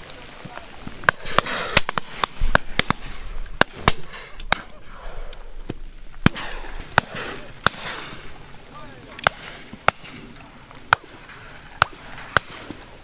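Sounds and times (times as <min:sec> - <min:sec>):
shotgun shots: 0:01.1 - 0:04.8, 0:06.2 - 0:08.2, 0:09.2 - 0:10.3, 0:11.8 - 0:12.8.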